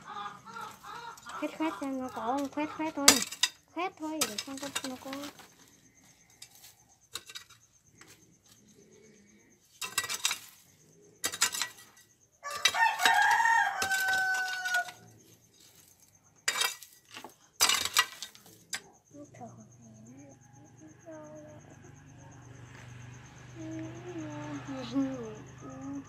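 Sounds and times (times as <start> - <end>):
rooster crowing: 0.0 - 2.4, 12.4 - 15.1
grit rattling: 0.5 - 8.3, 9.7 - 19.0
metal hoe striking stony soil: 0.6 - 5.5, 6.4 - 8.1, 9.8 - 18.8.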